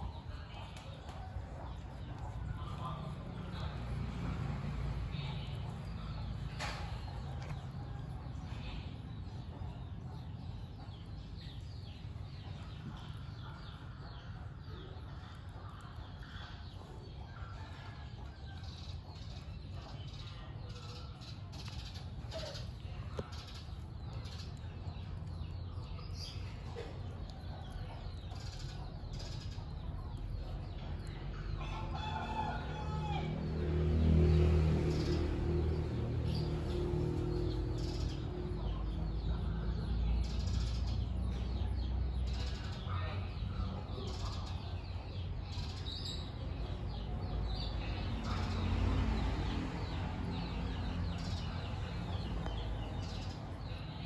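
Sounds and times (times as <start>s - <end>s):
small birds chirping: 0.0s - 54.0s
rooster crowing: 31.6s - 33.5s.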